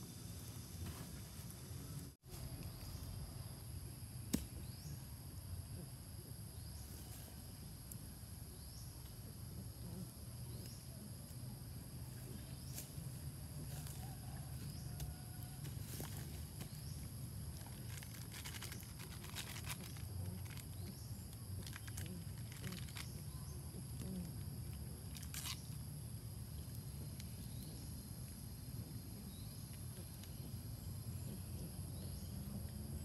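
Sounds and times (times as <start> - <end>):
high insect drone: 0.0 - 33.0.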